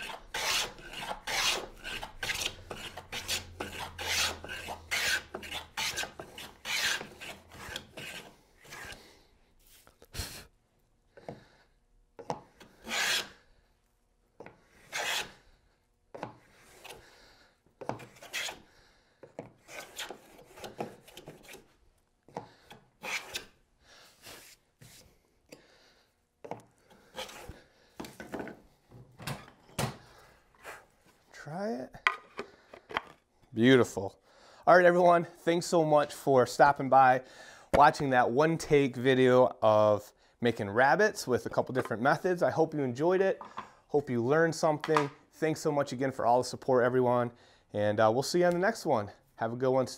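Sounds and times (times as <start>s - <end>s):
hand plane shaving wood: 0.0s - 9.0s, 12.6s - 13.4s, 14.8s - 15.4s, 17.9s - 18.6s, 19.6s - 21.7s, 23.0s - 23.5s, 27.0s - 27.6s.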